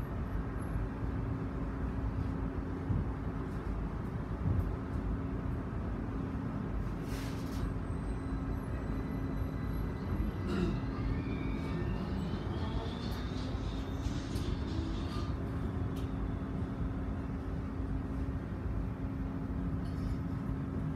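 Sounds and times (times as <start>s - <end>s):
tram hum and rumble: 0.0s - 20.9s.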